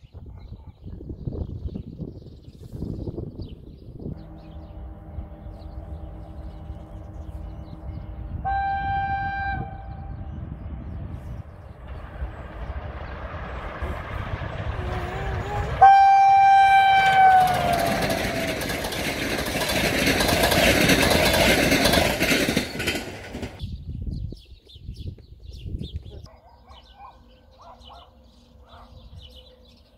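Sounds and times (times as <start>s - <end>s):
train passing rush and clatter: 1.4s - 24.0s
locomotive horn blast: 4.1s - 10.3s, 14.0s - 18.7s.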